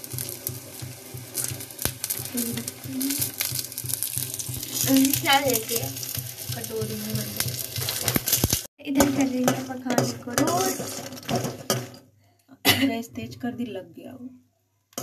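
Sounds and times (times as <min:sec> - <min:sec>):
steady sizzling hiss: 0:00.0 - 0:12.1
metal spoon scraping nuts in pan: 0:01.4 - 0:12.0.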